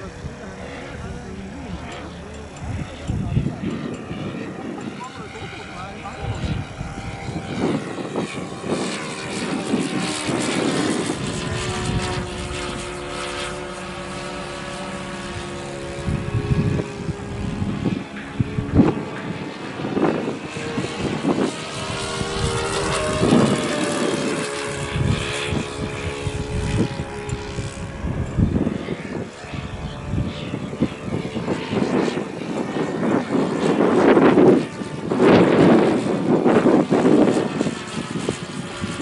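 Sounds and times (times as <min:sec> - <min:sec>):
model airplane engine: 0:00.0 - 0:39.0.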